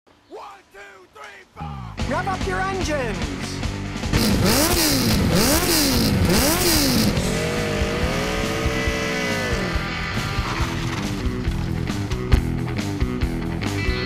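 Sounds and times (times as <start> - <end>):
motorcycle engine revving: 3.9 - 12.3.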